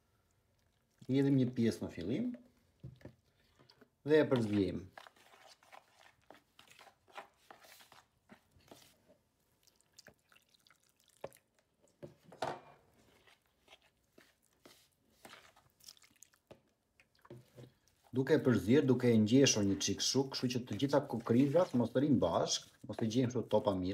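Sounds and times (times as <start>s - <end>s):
spoon stirring in plastic bowl: 1.0s - 9.2s, 11.1s - 18.3s, 19.0s - 23.9s
water pouring: 9.6s - 11.6s, 19.0s - 23.3s.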